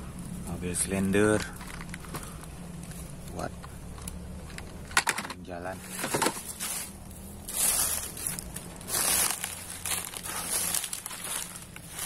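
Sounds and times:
footsteps crunching through dry leaves: 5.7 - 12.0.

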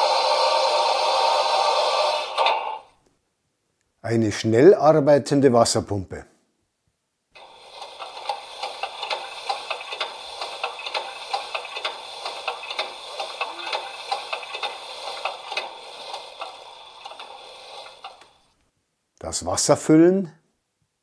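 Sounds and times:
rhythmic steam pump beat: 0.0 - 2.9, 7.4 - 18.5.

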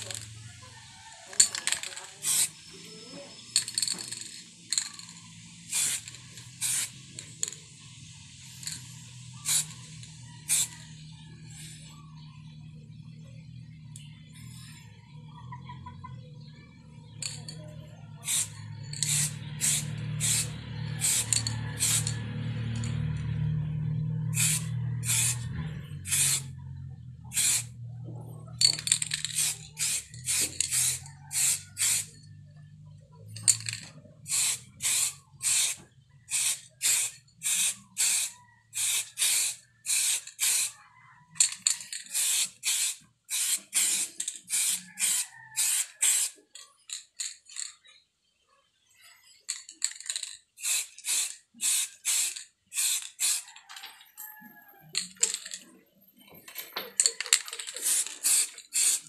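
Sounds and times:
aerosol spray can hissing bursts: 5.6 - 7.5, 8.3 - 10.7, 18.2 - 22.2, 24.4 - 25.4, 26.1 - 26.5, 27.3 - 27.7, 29.3 - 32.1, 34.3 - 40.7, 42.1 - 46.4, 50.6 - 53.4, 57.8 - 59.0.

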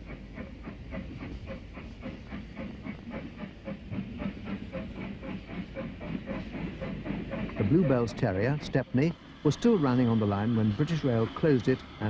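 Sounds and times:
steam engine exhaust chuffing: 0.0 - 12.0
steady running rumble: 4.8 - 12.0.

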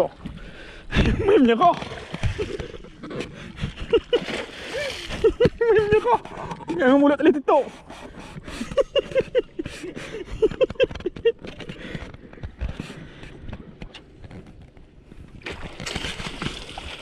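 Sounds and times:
water splashing: 1.3 - 7.0, 15.3 - 17.0.

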